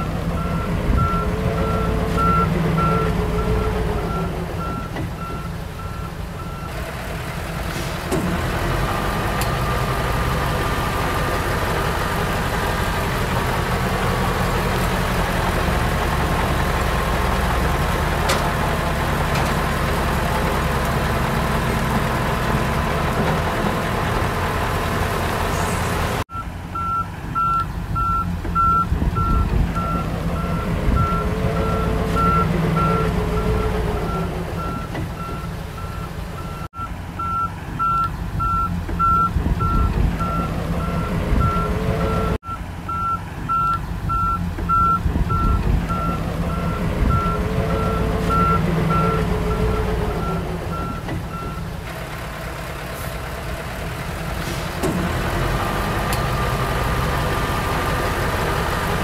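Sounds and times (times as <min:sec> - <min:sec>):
diesel engine running: 0:00.0 - 0:59.0
reversing alarm beeping: 0:26.3 - 0:51.7.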